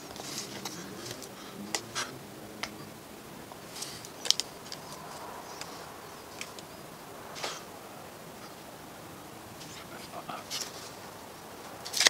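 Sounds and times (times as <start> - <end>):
small objects clicking on wood: 3.8 - 5.7.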